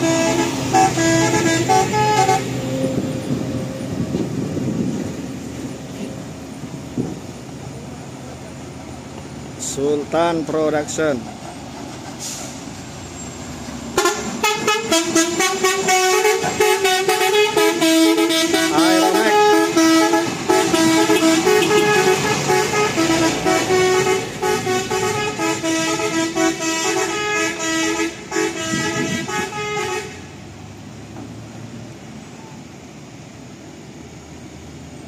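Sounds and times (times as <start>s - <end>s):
truck multi-tone horn playing tune: 0.0s - 3.6s, 13.9s - 30.4s.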